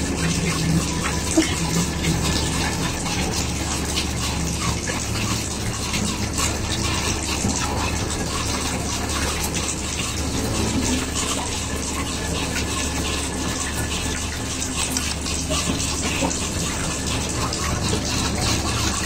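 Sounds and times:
water pouring and splashing: 0.0 - 19.0.

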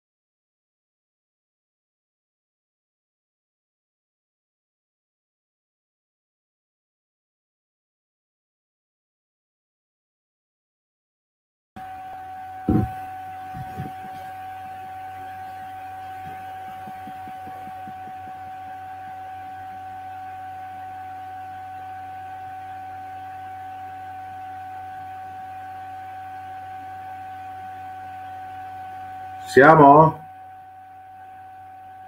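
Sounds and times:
steady electronic tone: 11.8 - 20.7
low electrical hum: 11.8 - 32.0
knocks: 12.7 - 13.0.

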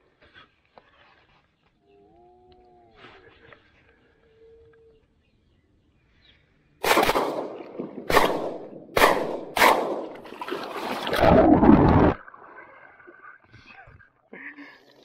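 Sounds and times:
shotgun shots: 6.8 - 10.2
loud splash: 9.6 - 12.4
muffled water rushing: 10.2 - 13.5.

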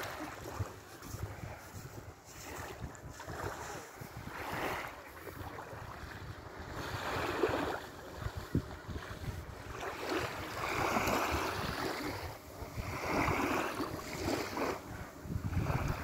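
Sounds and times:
small waves washing onto sand: 0.0 - 16.0
wind buffeting microphone: 0.0 - 16.0.

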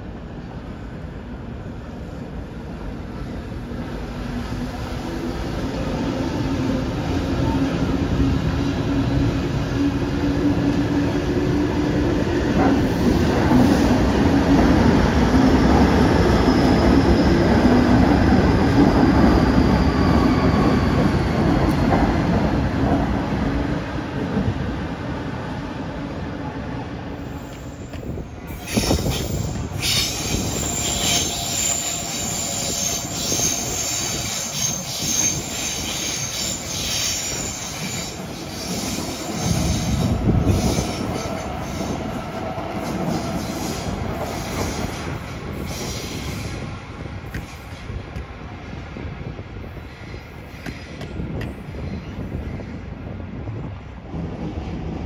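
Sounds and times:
train wheels rumbling on rail: 0.0 - 55.0
train wheels squealing: 15.5 - 21.9, 27.2 - 42.2, 42.8 - 46.7.

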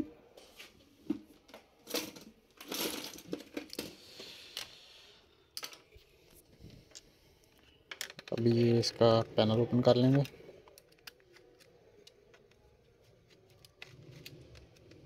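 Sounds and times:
clicks and knocks of handling: 7.9 - 8.8.

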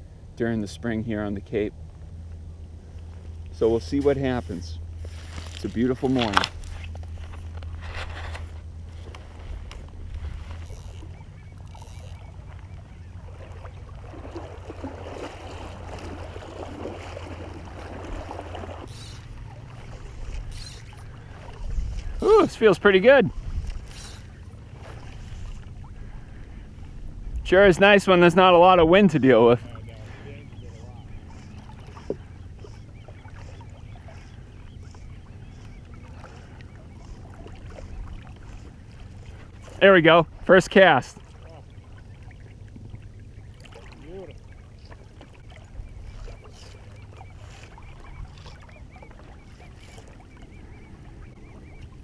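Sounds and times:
low rumble: 1.0 - 22.4, 23.3 - 33.3
legs wading through shallow water: 1.7 - 52.0
rush of moving water: 12.5 - 26.6.

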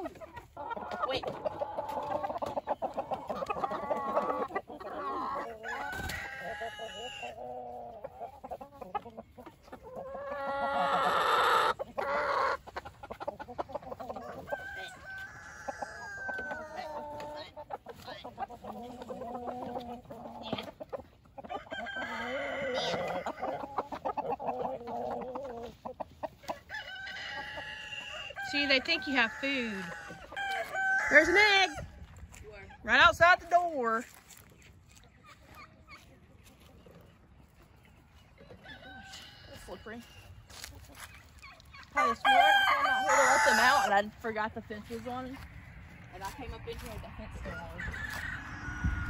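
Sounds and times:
hens clucking: 0.0 - 49.0
rooster crowing: 5.6 - 7.3, 14.3 - 16.7, 21.6 - 23.3, 26.7 - 31.8, 38.6 - 39.9, 42.0 - 44.0, 47.4 - 49.0.

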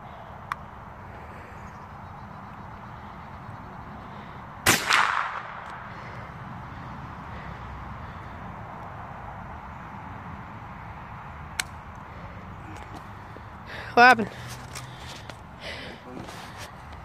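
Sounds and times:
rifle shot with echo: 4.6 - 5.9.

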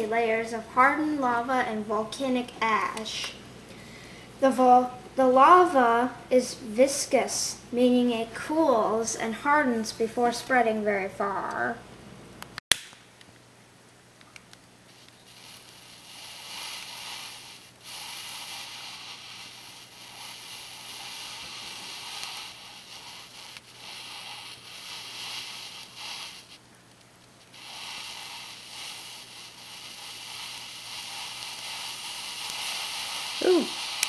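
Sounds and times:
lighter flame hissing: 14.6 - 34.0.

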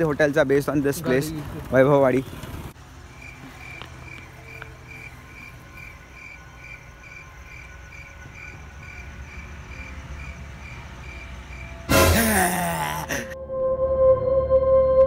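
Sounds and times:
cricket chirping: 2.9 - 12.5.

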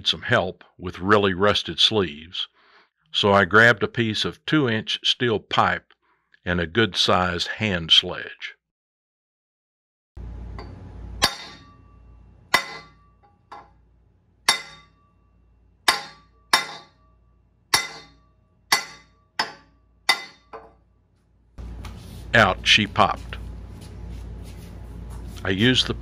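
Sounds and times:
sledgehammer striking steel pipe: 10.6 - 13.8, 14.5 - 15.2, 15.8 - 20.8.

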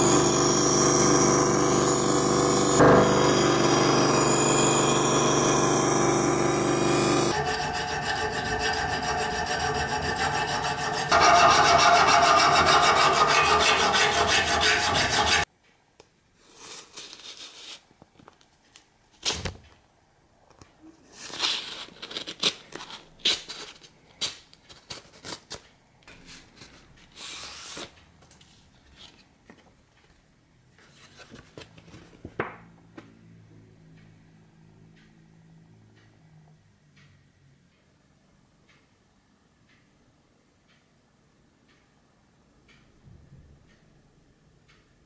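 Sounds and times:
file rasping on steel: 0.0 - 15.5
paper rustling and tearing: 16.6 - 17.9, 21.1 - 23.9.

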